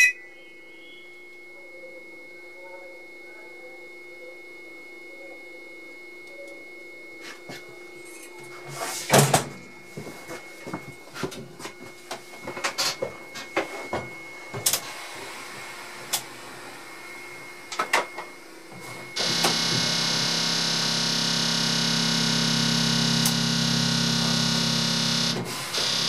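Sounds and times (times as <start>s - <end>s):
machinery whirring hum: 0.0s - 26.0s.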